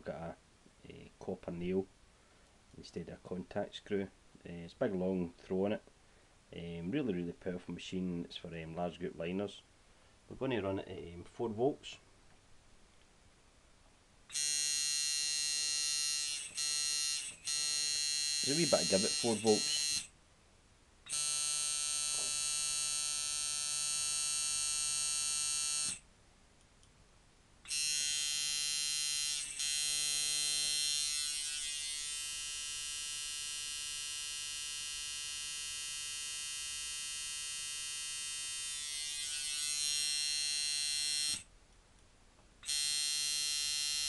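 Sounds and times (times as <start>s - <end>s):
tattoo machine buzzing: 14.3s - 20.1s, 21.1s - 26.0s, 27.7s - 41.5s, 42.6s - 44.0s.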